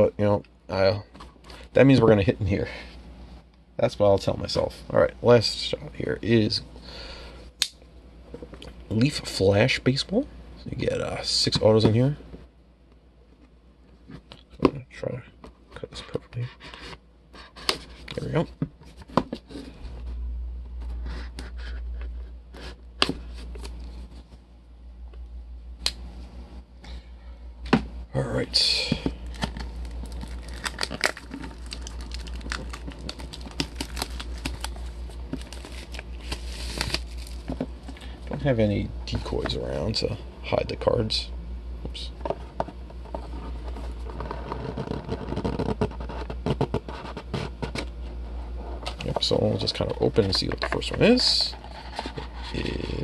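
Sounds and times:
low steady hum: 0.0 - 53.0
plastic wrap crinkling: 29.2 - 37.8.

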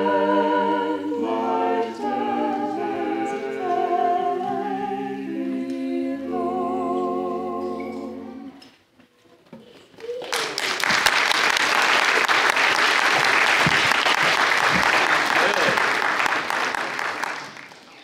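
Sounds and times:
singers holding chord with vibrato: 0.0 - 8.6
congregation applause: 10.0 - 18.0.

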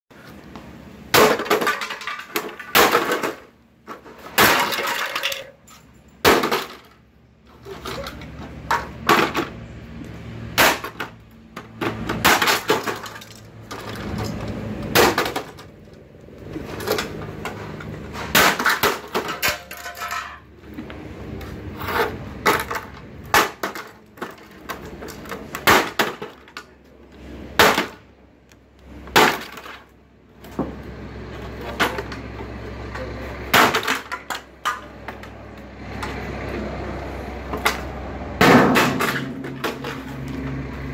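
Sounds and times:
sledgehammer blows: 37.4 - 40.9.

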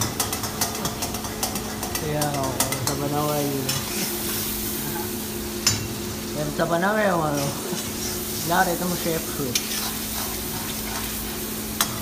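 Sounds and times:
spatula clicking against a pan: 0.0 - 3.0
spatula stirring in a pan: 0.0 - 5.8, 7.4 - 12.0
gravy sizzling in a frying pan: 0.0 - 12.0.

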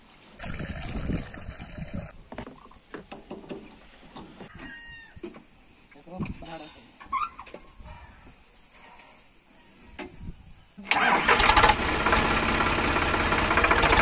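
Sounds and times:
tractor diesel engine: 10.8 - 14.0.

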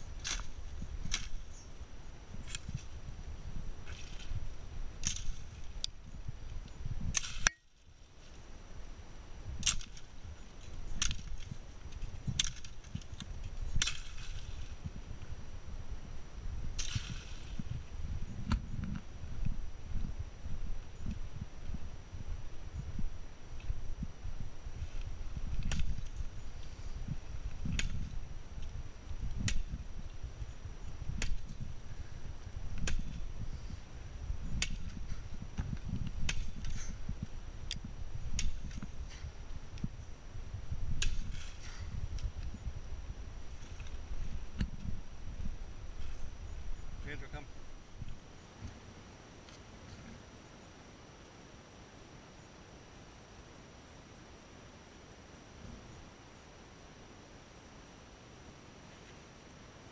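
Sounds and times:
camera jostling rumble: 0.0 - 7.5
machete chopping vegetation: 13.8 - 14.4.

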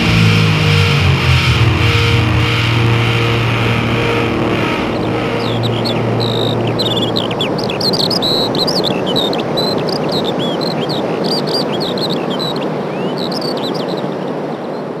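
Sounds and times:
steady background rush: 0.0 - 10.0.

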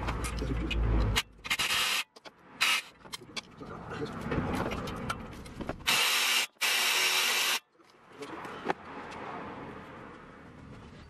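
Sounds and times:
power tool whirring: 1.4 - 2.9, 5.8 - 7.6.

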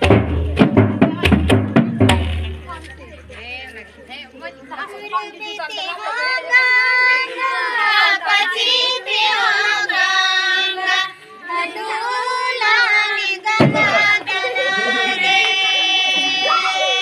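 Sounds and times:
women singing together: 4.8 - 17.0
loud thump: 13.6 - 14.2.

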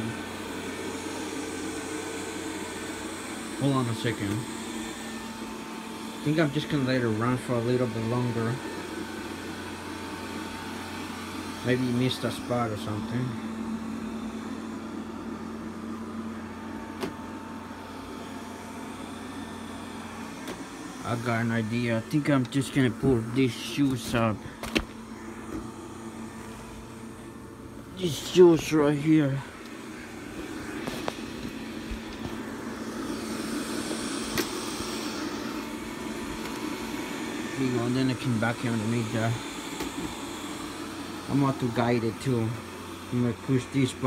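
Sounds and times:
robot vacuum motor hum: 0.0 - 44.0.

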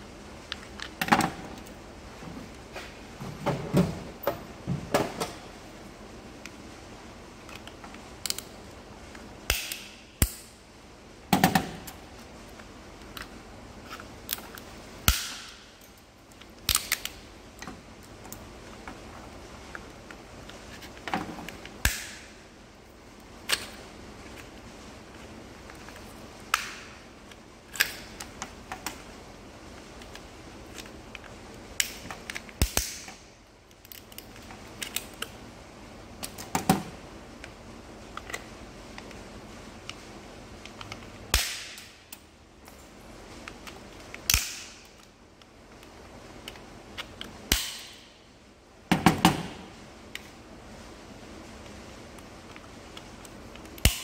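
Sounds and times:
plastic snapping and cracking: 16.6 - 17.2.

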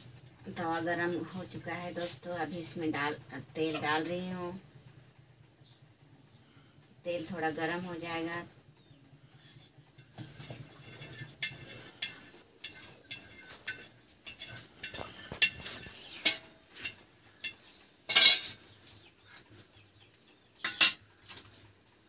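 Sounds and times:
steel utensils clinking: 9.9 - 18.7, 20.6 - 21.2.

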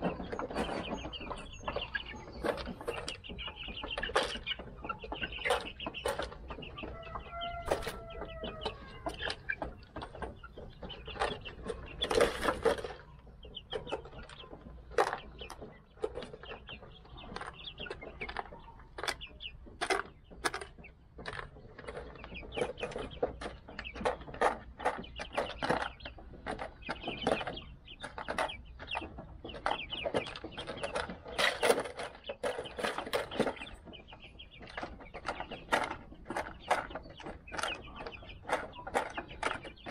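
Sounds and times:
chicks calling and clucking: 0.0 - 39.9
long falling chick call: 6.8 - 9.5.

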